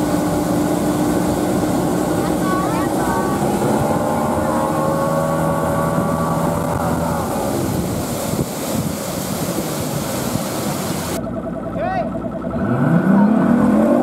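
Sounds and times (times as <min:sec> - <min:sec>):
wind buffeting microphone: 0:00.0 - 0:11.2
boat wake rushing: 0:00.0 - 0:14.0
outboard motor running: 0:00.0 - 0:14.0.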